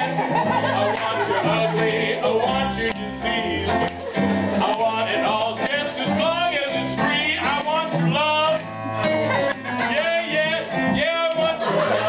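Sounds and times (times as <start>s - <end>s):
man singing theatrically: 0.0s - 3.8s, 9.8s - 12.0s
instrumental accompaniment: 0.0s - 12.0s.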